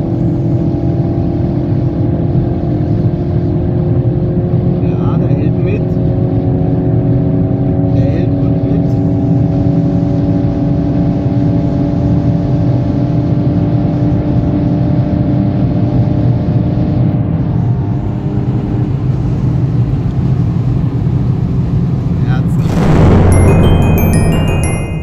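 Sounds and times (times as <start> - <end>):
road and tyre rumble: 0.0 - 22.5
car engine drone: 22.3 - 24.6.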